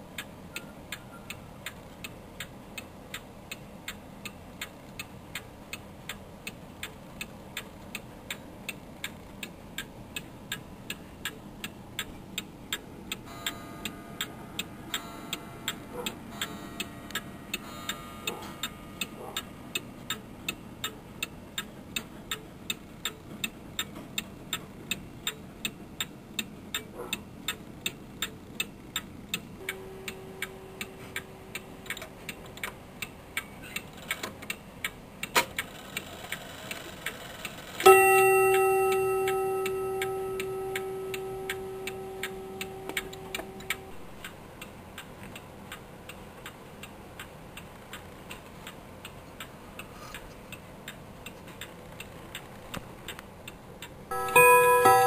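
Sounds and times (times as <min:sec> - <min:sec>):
clock ticking: 0:00.0 - 0:52.5, 0:53.1 - 0:55.0
clock bell strike: 0:37.8 - 0:44.2, 0:54.1 - 0:55.0.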